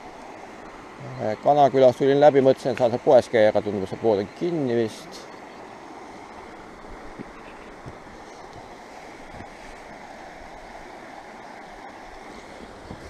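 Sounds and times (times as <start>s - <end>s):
river rapids rushing over stones: 4.7s - 13.0s.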